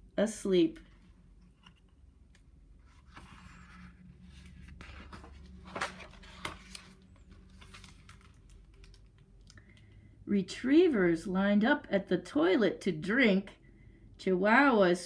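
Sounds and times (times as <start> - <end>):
paper page rustling: 2.8 - 9.0.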